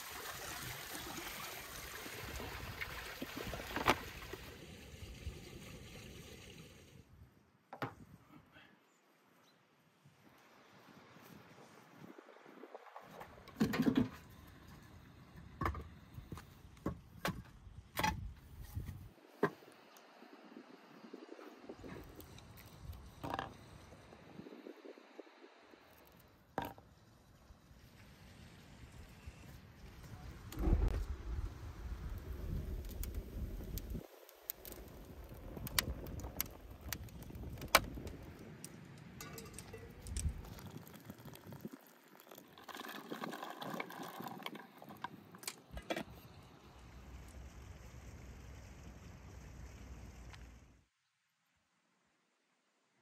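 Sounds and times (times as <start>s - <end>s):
firewood crackling and popping: 0.0s - 7.0s, 21.8s - 23.8s, 29.8s - 50.6s
wooden logs clattering: 34.6s - 46.2s.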